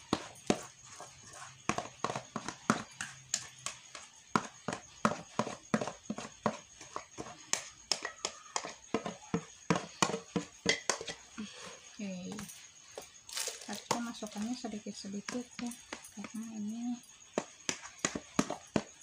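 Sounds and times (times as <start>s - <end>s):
spoon knocking metal bowl: 7.2s - 11.2s.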